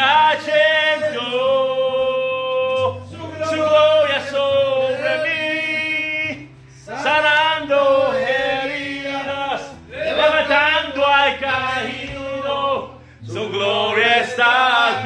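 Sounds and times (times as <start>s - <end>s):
men singing a chant: 0.0s - 15.0s.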